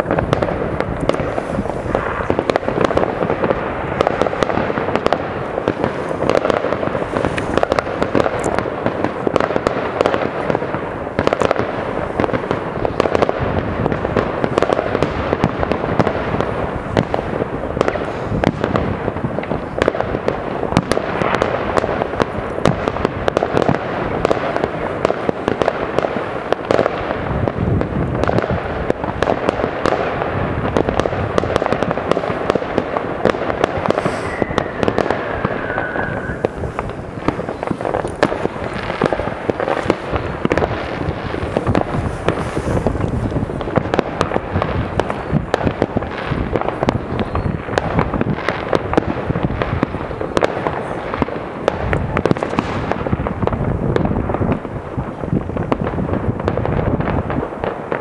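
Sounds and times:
fireworks bangs and crackles: 0:00.0 - 0:58.0
falling firework whistle: 0:33.6 - 0:40.1, 0:46.9 - 0:48.0.

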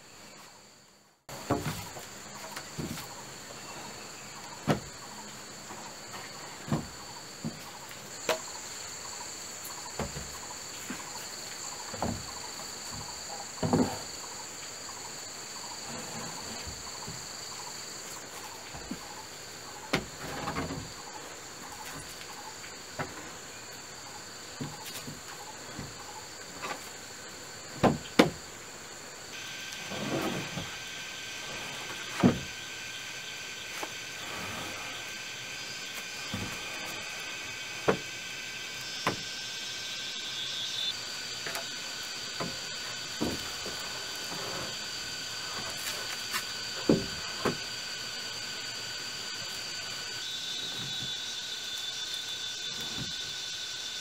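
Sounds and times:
insect chorus: 0:00.0 - 0:54.0
wooden planks knocking: 0:01.3 - 0:03.1, 0:12.9 - 0:14.1, 0:27.8 - 0:28.4, 0:46.8 - 0:47.6.

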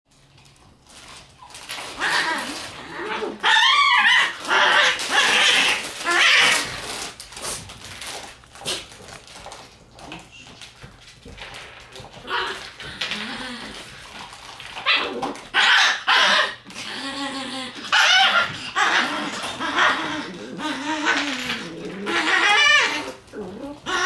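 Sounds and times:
puppy warbling cries: 0:02.0 - 0:06.7, 0:14.8 - 0:24.0.

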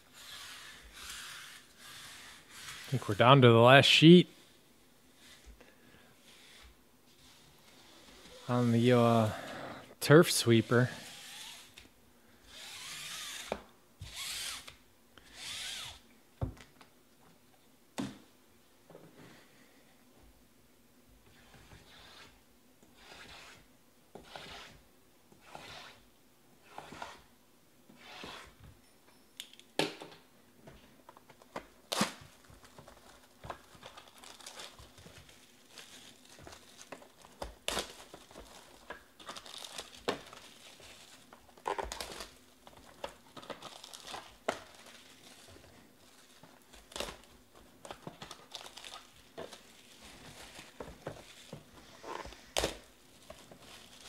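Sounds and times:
plastic wrap crinkling and tearing: 0:31.5 - 0:54.0.

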